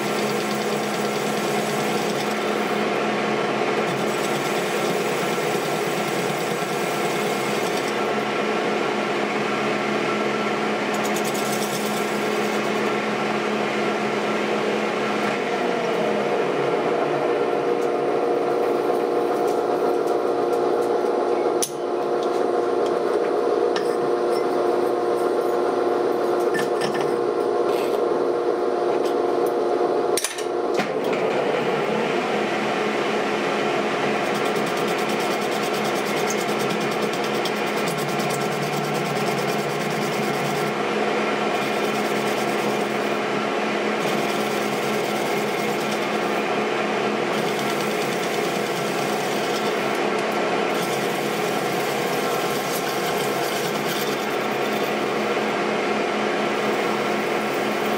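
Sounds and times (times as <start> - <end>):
metal lathe cutting steel: 0.0 - 3.0, 3.8 - 8.2, 11.0 - 12.8, 34.1 - 55.8, 56.6 - 57.9.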